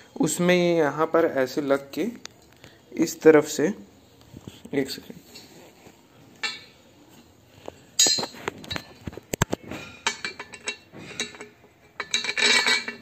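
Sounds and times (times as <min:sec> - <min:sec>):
metal parts clinking: 0:06.4 - 0:06.8, 0:08.0 - 0:09.2, 0:10.0 - 0:13.0.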